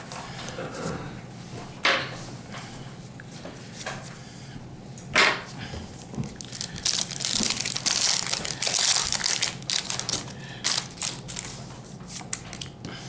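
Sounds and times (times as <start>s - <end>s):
foil crinkling: 6.2s - 12.7s
foil wrapper tearing: 6.3s - 12.7s.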